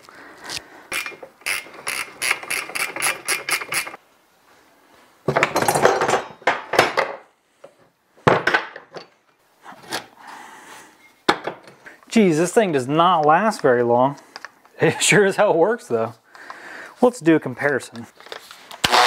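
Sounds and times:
winch ratchet clicks: 0:00.9 - 0:04.0
metal clanking and clatter: 0:05.3 - 0:07.1.

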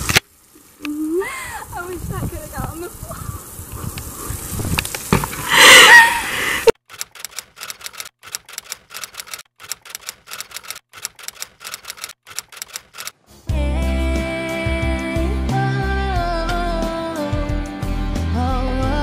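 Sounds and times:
woman laughing loudly: 0:05.5 - 0:06.8.

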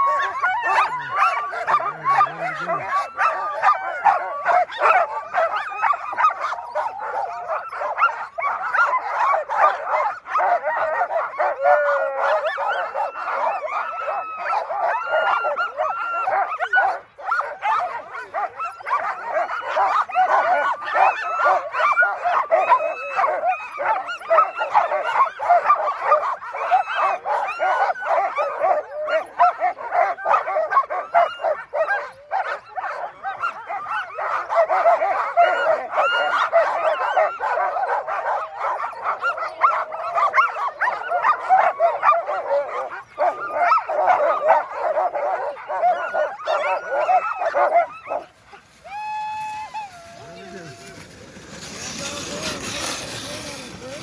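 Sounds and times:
sled dogs barking and howling: 0:00.0 - 0:54.0.

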